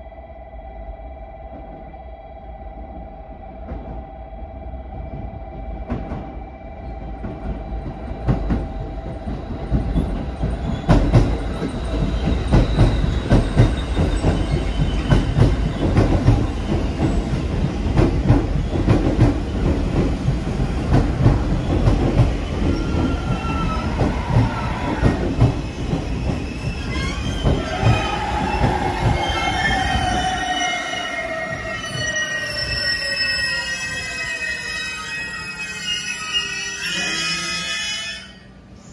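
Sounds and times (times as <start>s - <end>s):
train wheels clattering over joints: 7.2s - 30.2s
train brakes squealing: 9.8s - 17.9s, 21.5s - 38.9s.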